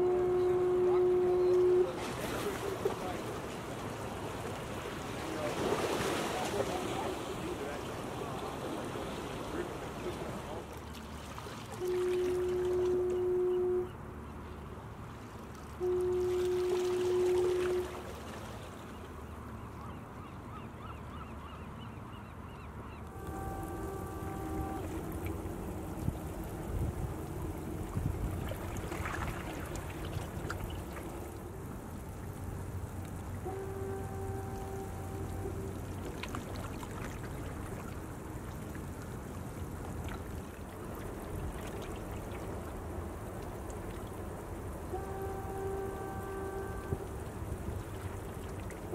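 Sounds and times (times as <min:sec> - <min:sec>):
wind and water rushing: 0:00.0 - 0:48.9
bird calls: 0:15.9 - 0:25.4
low hum: 0:22.9 - 0:38.0.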